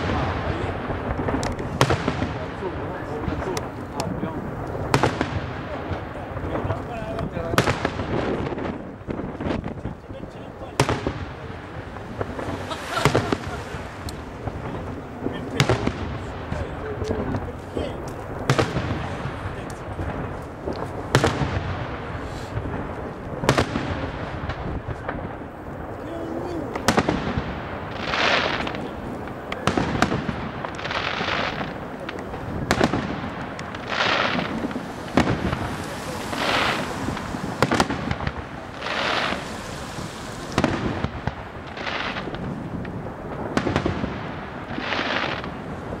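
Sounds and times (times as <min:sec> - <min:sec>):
firework bangs: 0:00.0 - 0:46.0
firework hissing rushes: 0:11.6 - 0:16.3, 0:30.0 - 0:43.5.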